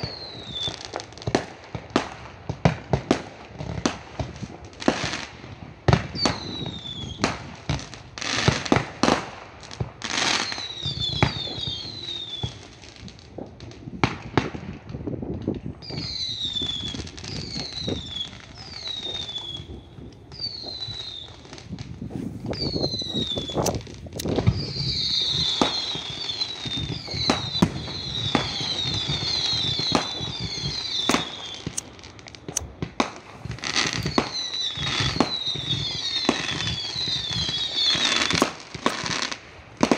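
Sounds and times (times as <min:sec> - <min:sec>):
fireworks bangs: 0:00.0 - 0:39.9
falling whistles: 0:15.8 - 0:21.5, 0:22.1 - 0:23.8, 0:33.7 - 0:38.4.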